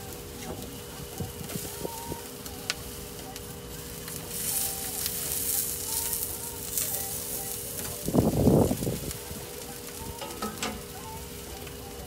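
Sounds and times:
skewers sizzling on a grill: 0.0 - 12.0.

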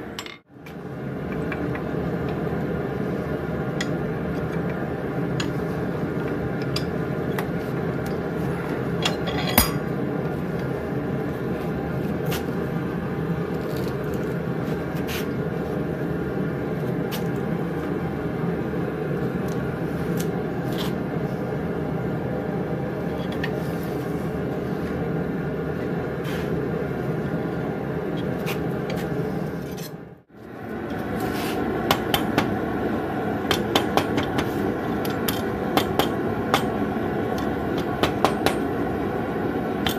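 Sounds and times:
sharp metal clank: 9.1 - 9.9.

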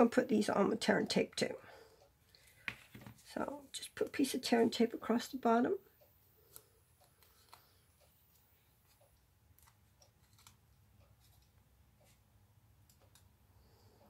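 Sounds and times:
faint clicks of handling card and tape: 6.4 - 12.2.

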